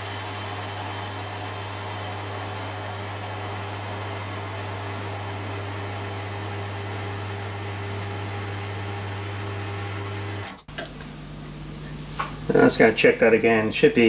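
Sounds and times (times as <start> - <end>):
low motor hum: 3.1 - 14.0.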